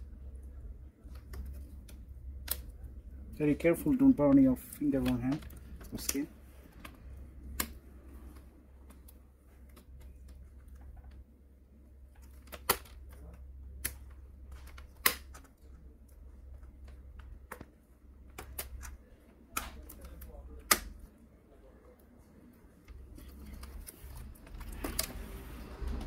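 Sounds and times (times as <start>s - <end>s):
low steady hum: 0.0s - 26.0s
plastic clicks and snaps: 1.0s - 2.9s, 4.9s - 11.2s, 12.1s - 21.1s.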